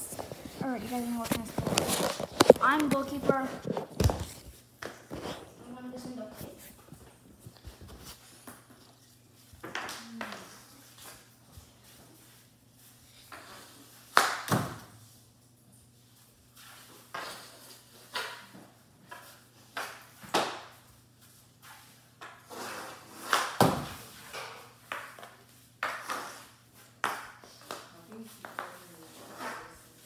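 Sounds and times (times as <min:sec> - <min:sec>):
hockey stick knocking puck: 0:23.0 - 0:27.9.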